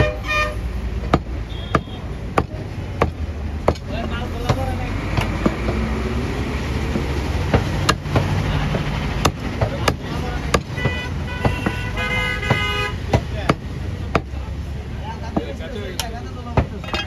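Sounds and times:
vehicle horn: 0.0s - 0.7s, 1.4s - 2.1s, 10.7s - 13.0s
road traffic rumble: 0.0s - 17.0s
cleaver chopping meat on wood: 1.0s - 6.1s, 6.8s - 14.4s.

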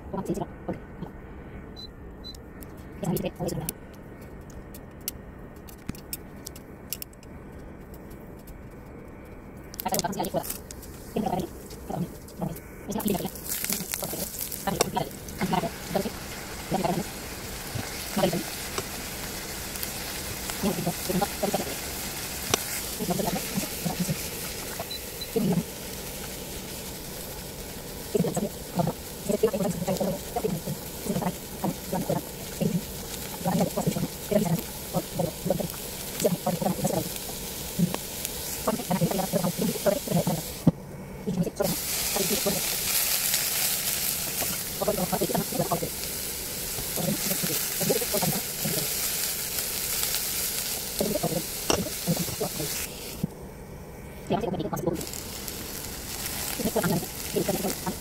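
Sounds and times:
indistinct voices talking: 3.0s - 3.8s, 9.8s - 10.5s, 11.1s - 18.6s, 23.0s - 25.7s, 28.1s - 37.1s, 37.8s - 40.5s, 44.7s - 46.0s, 54.3s - 55.2s, 56.5s - 58.0s
vegetables frying in oil: 12.9s - 40.7s, 41.6s - 53.2s, 54.4s - 58.0s.

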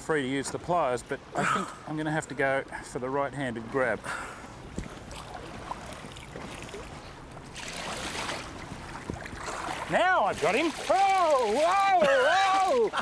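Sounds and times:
water sloshing: 3.6s - 13.0s
water splashing against boat: 3.6s - 13.0s.

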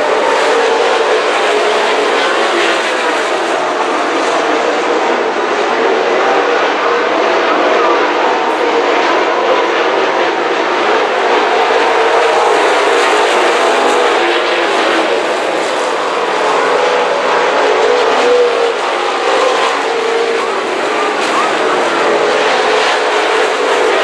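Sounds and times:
race car engines droning: 0.0s - 24.0s.

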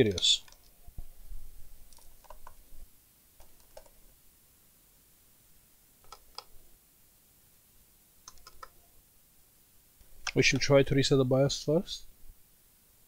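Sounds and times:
laptop clicks and taps: 2.0s - 2.6s, 3.4s - 4.0s, 6.0s - 6.5s, 8.3s - 8.8s.

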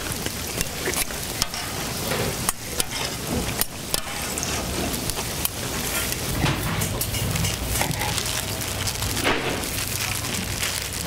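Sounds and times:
pancakes sizzling in oil: 0.0s - 6.4s, 7.4s - 11.0s
metal tongs clicking: 0.6s - 1.8s.

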